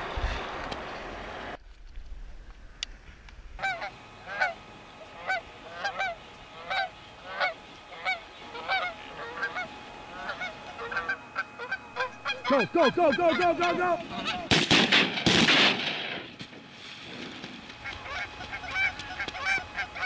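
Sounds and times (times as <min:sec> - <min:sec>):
geese honking in flight: 0:03.6 - 0:14.9, 0:17.7 - 0:20.0.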